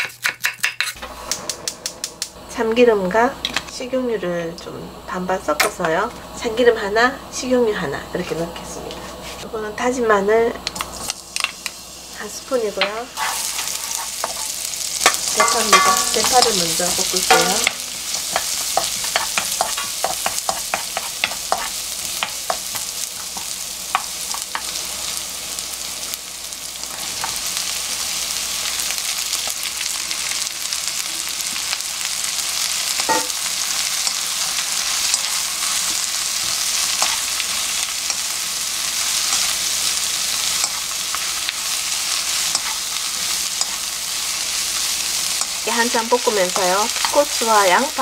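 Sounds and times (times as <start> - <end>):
food sizzling in oil: 0.0 - 48.0
wooden spatula tapping pan: 15.1 - 16.5, 17.2 - 22.7.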